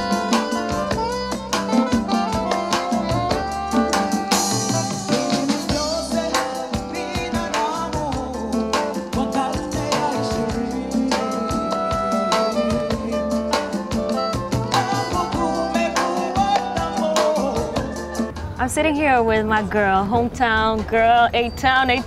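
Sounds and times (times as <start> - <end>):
driving drum beat: 0.0 - 19.5
person singing: 2.8 - 18.3.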